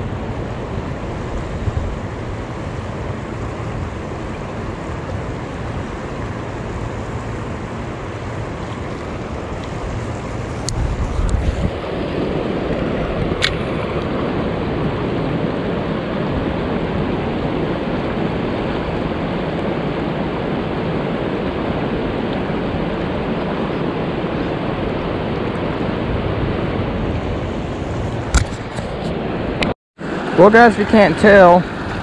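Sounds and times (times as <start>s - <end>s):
river rushing over rocks: 27.4s - 32.0s.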